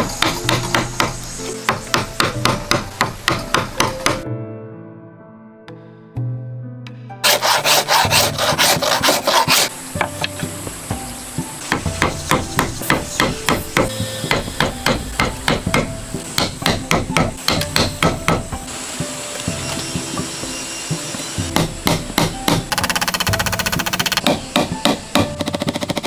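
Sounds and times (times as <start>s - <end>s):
chisel scraping in wood: 7.2s - 10.4s
mallet striking steel chisel: 11.7s - 18.4s, 21.5s - 26.0s.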